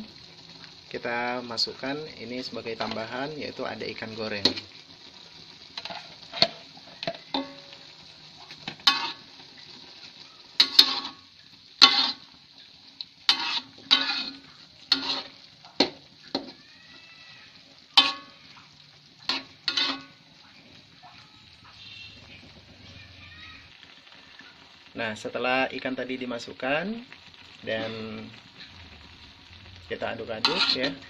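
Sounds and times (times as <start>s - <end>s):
faint simmering hiss: 0.0s - 31.0s
metal spatula scraping wok: 2.3s - 3.4s, 5.7s - 9.6s, 10.6s - 16.6s, 17.5s - 20.3s, 27.6s - 31.0s.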